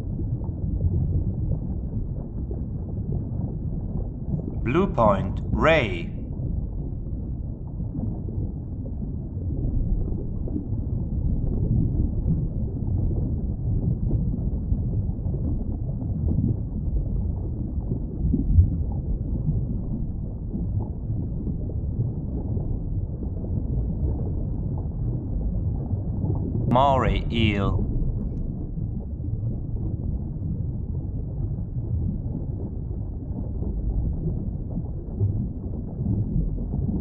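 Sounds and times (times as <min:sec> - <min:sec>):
underwater rumble of moving water: 0:27.9 - 0:37.0.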